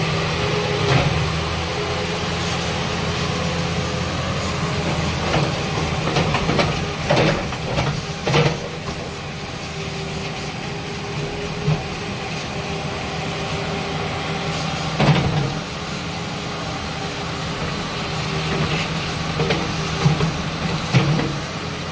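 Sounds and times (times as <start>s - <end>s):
excavator diesel engine running: 0.0s - 21.9s.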